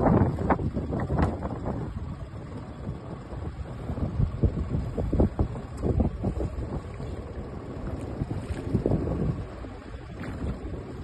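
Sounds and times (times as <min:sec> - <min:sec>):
water sloshing against boat hull: 0:00.0 - 0:11.0
wind buffeting microphone: 0:00.0 - 0:11.0
splashes: 0:05.7 - 0:11.0.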